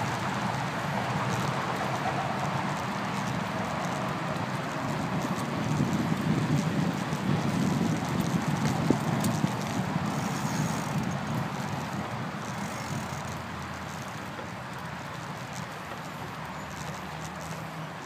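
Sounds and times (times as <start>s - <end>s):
wind rushing over microphone: 0.0s - 13.1s
bike rattling on path: 0.0s - 18.0s.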